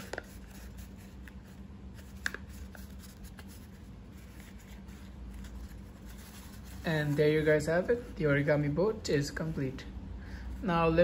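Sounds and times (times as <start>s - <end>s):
paper rustling and crinkling: 0.0s - 8.1s
low steady hum: 0.0s - 11.0s.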